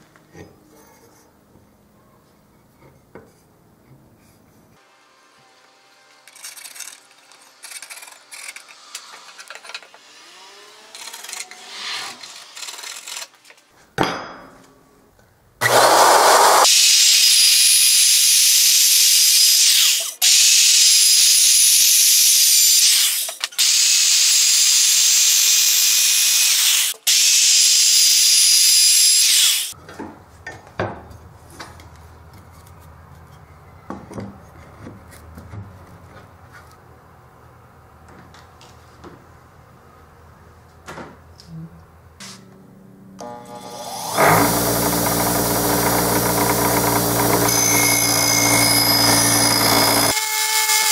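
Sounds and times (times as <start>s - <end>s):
electric router whining: 15.6s - 19.9s, 43.2s - 50.6s.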